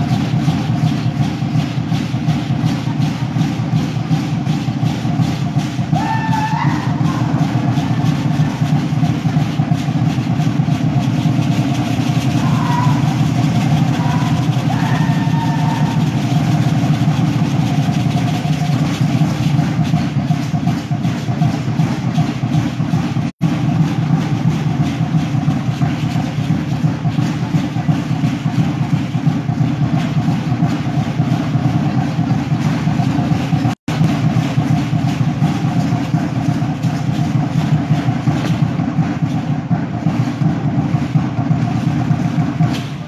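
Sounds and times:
continuous rattling: 0:00.0 - 0:43.0
fast pounding drums: 0:00.0 - 0:43.0.

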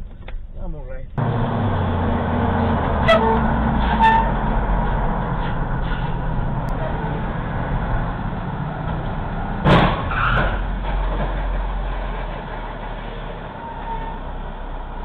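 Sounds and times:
car engine and road hum: 0:00.0 - 0:15.0
loud crash: 0:09.6 - 0:12.7.

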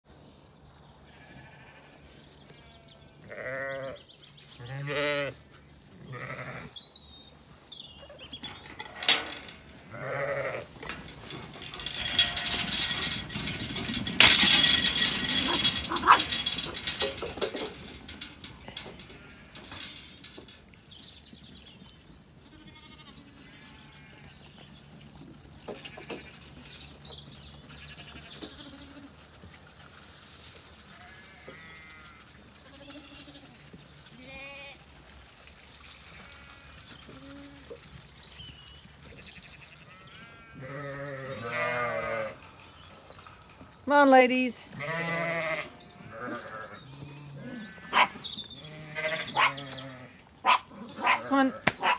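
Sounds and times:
sheep bleating: 0:01.1 - 0:01.9, 0:02.6 - 0:04.0, 0:04.6 - 0:05.4, 0:06.1 - 0:06.8, 0:09.9 - 0:10.7, 0:39.9 - 0:42.4, 0:44.8 - 0:47.9, 0:48.6 - 0:50.2
loud rustling: 0:10.7 - 0:18.6.

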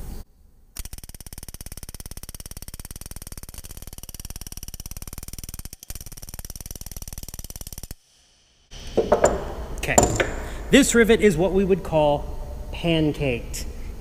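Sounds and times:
pneumatic rivet gun hammering: 0:08.9 - 0:10.6.

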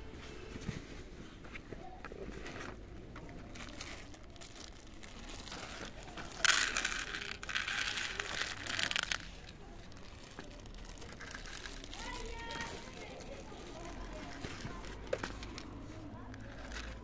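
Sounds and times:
plastic bag crinkling: 0:02.4 - 0:17.0
kibble pouring onto plastic plate: 0:03.6 - 0:15.6.

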